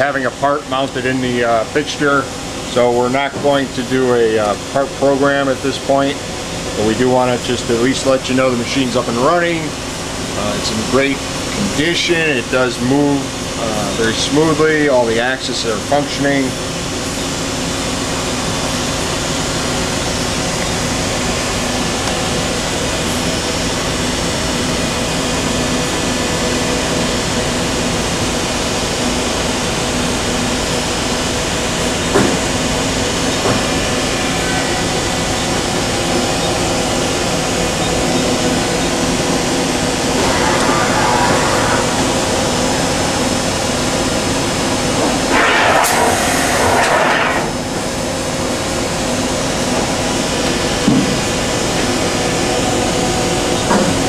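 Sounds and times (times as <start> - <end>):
machine tool humming: 31.2 - 46.1
machine rushing swells: 39.2 - 45.9.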